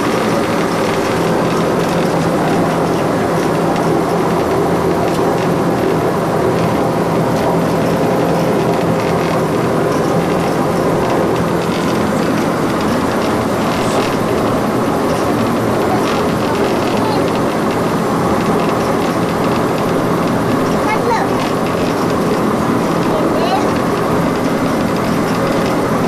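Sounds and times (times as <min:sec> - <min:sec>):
hovercraft engine drone: 0:00.0 - 0:26.0.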